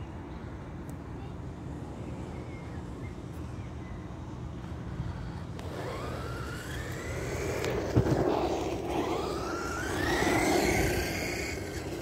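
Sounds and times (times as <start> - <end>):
toy car motor whining: 4.7 - 12.0.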